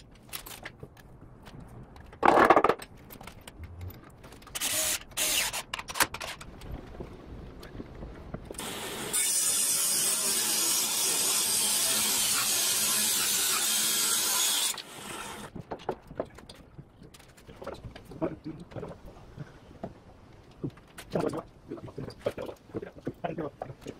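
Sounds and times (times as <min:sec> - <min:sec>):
wood and tools knocking: 0:00.7 - 0:04.1
table saw cutting board: 0:08.6 - 0:15.5.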